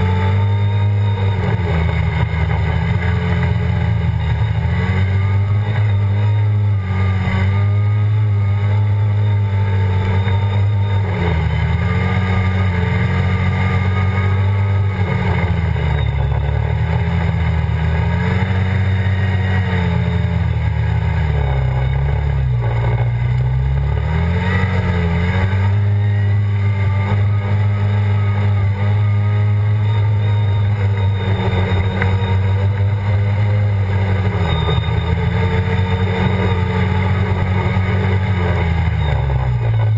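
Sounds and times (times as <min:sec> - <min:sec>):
engine revving high: 0:00.0 - 0:39.9.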